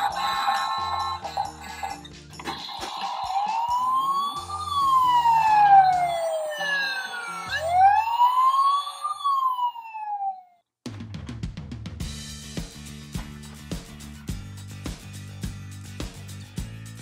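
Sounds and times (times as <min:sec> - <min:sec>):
toy siren wailing: 0:00.0 - 0:01.9, 0:02.8 - 0:10.6
quiet background music: 0:00.0 - 0:08.8.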